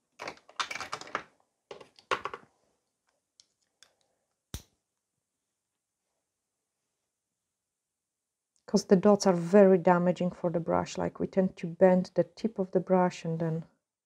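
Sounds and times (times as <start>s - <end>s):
small tools rattling and clinking: 0.2s - 2.4s.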